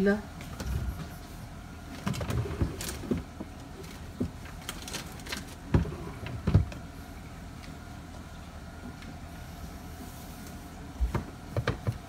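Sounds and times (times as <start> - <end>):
light knocks and bumps: 11.0 - 12.0.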